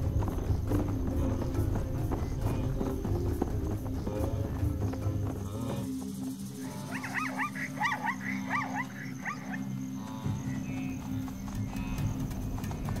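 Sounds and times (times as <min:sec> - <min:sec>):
music bed: 0:00.0 - 0:13.0
high yelping animal calls: 0:05.3 - 0:11.0.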